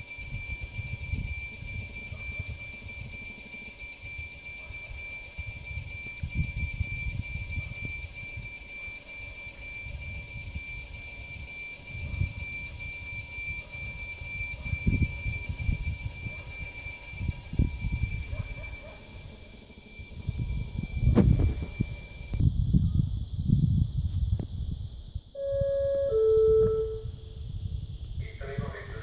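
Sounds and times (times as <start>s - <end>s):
electric bell ringing: 0.0s - 22.4s.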